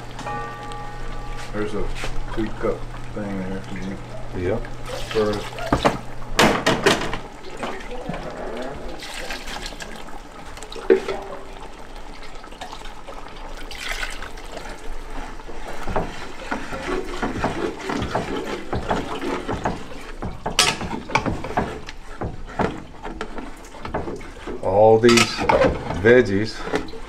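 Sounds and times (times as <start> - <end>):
broth pouring into a pot: 1.5 - 27.0
stirring thick liquid: 1.8 - 27.0
spoon scraping and knocking a pot: 15.7 - 26.0.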